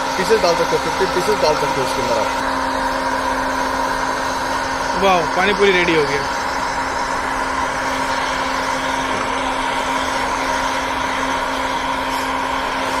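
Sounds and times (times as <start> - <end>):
blower rushing air: 0.0 - 13.0.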